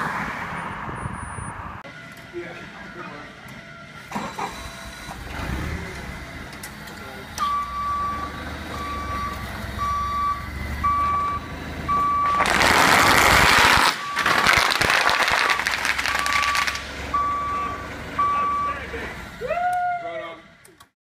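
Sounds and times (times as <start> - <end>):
forklift engine hum: 1.5 - 14.6, 15.5 - 20.9
backup alarm beeping: 7.4 - 12.4, 15.6 - 18.9.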